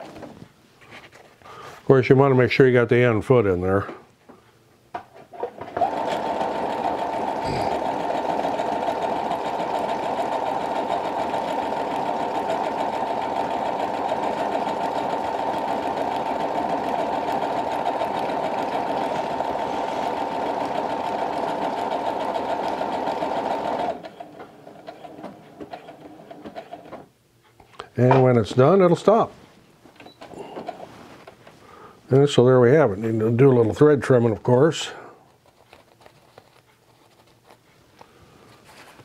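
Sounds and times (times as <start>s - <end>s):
sewing machine stitching: 5.4s - 27.1s.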